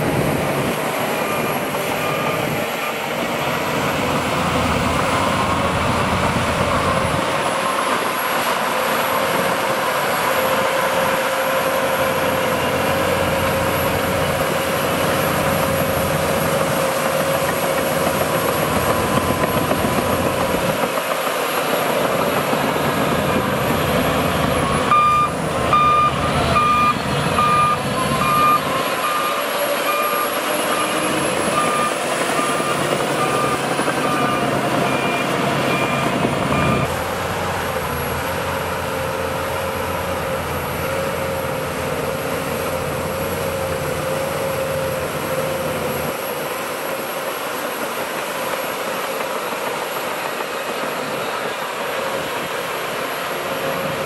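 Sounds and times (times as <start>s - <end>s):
bulldozer diesel engine running: 0.0s - 54.0s
reversing alarm beeping: 1.1s - 3.1s, 24.0s - 36.9s.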